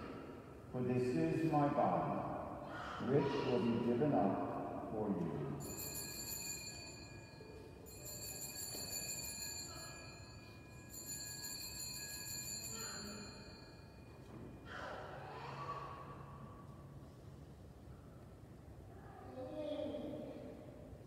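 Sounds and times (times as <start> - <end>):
altar bells ringing: 5.6 - 14.8.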